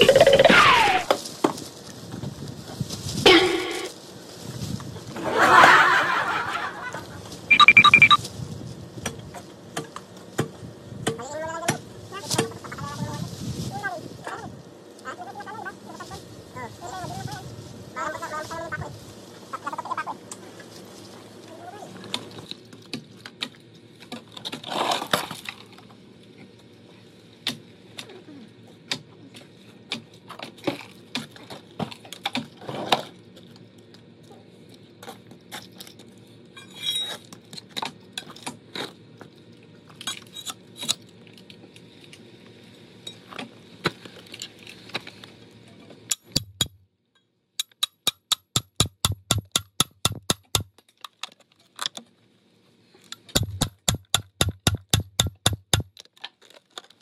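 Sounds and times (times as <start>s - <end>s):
hammer striking steel chisel: 47.6s - 50.7s, 53.3s - 55.9s.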